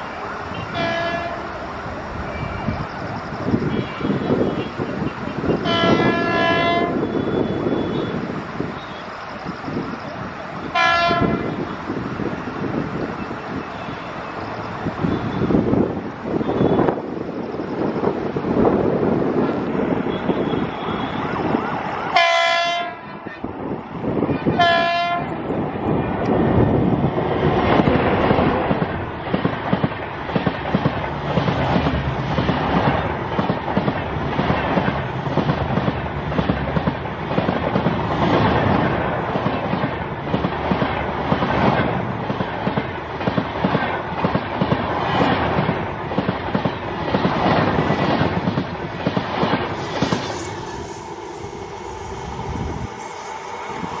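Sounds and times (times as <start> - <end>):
train coaches rushing past: 0.0 - 54.0
locomotive horn blasts: 0.5 - 1.5, 5.4 - 8.2, 10.7 - 11.7, 20.0 - 21.5, 22.1 - 23.4, 24.3 - 25.3.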